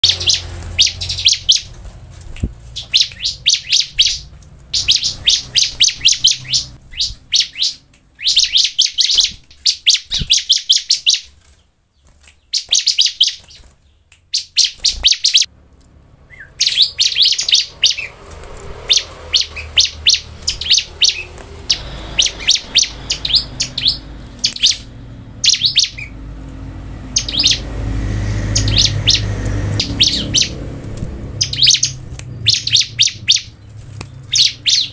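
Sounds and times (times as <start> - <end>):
bird chirping: 0.0 - 15.5, 16.2 - 34.9
low rumble: 18.1 - 34.7.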